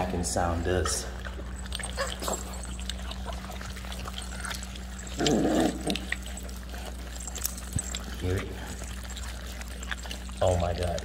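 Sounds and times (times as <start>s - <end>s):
puppies chewing and smacking: 0.0s - 11.0s
puppy vocal sound: 0.0s - 11.0s.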